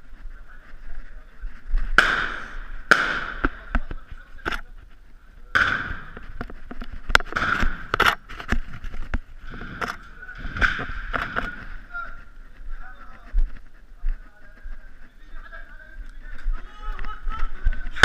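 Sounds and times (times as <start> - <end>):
gunshots with echo: 2.0 - 3.7, 5.5 - 6.2, 7.3 - 8.0.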